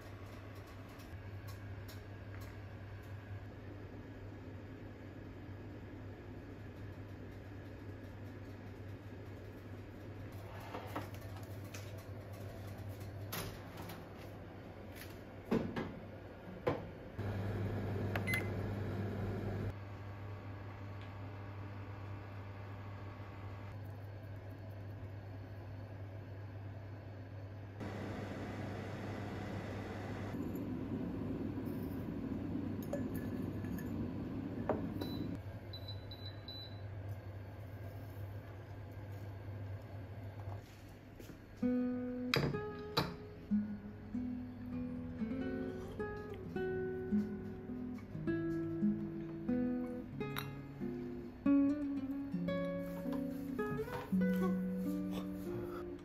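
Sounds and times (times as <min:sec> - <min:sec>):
microwave humming: 0:00.0 - 0:56.0
low hum: 0:17.2 - 0:36.8.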